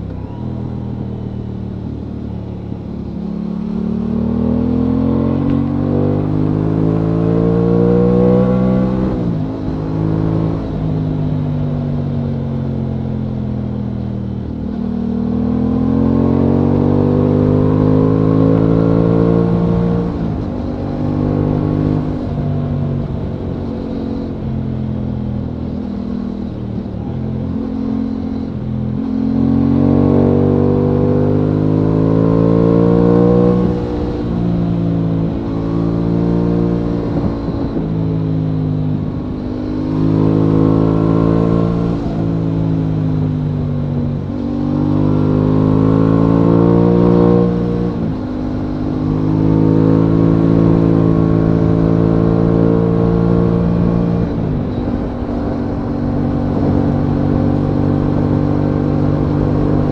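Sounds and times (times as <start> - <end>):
motorcycle engine revving: 0.0 - 59.9.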